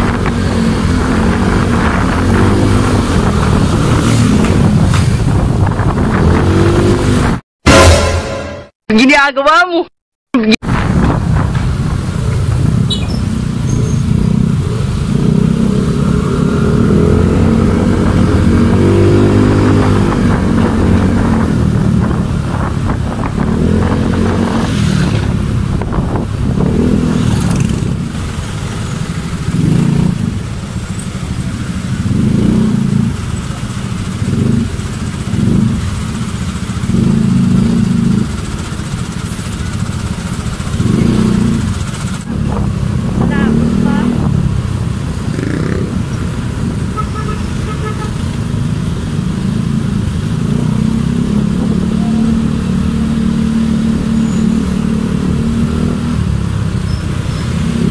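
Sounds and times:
motorcycle engine revving: 0.0s - 8.5s, 10.9s - 57.9s
surrounding traffic: 0.0s - 57.9s
road noise hiss: 27.3s - 57.9s.

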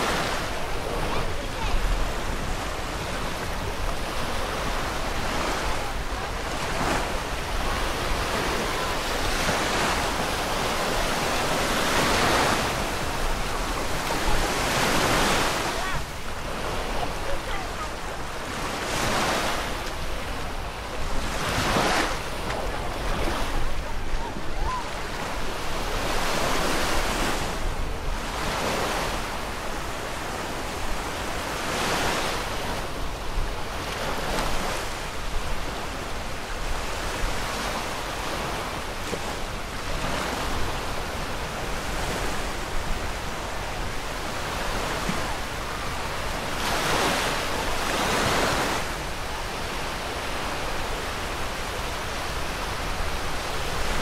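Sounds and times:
ocean waves breaking on shore: 0.0s - 54.0s.

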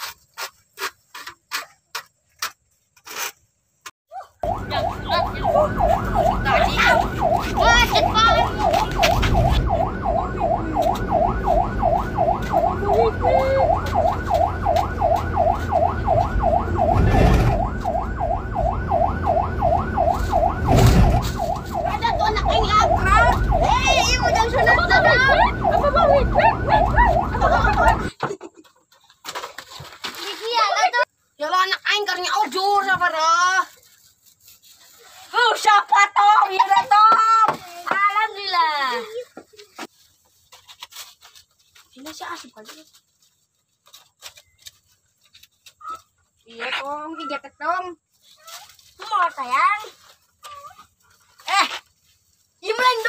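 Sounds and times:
high rising cries: 4.4s - 28.1s
wailing siren: 4.4s - 28.1s.

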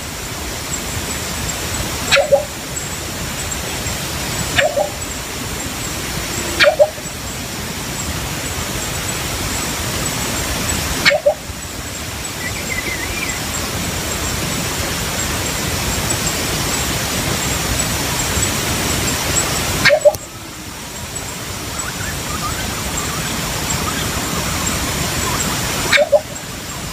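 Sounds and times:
steady loud hiss: 0.0s - 26.9s
bird low two-note calls: 2.1s - 2.6s, 4.5s - 5.1s, 11.0s - 11.4s.

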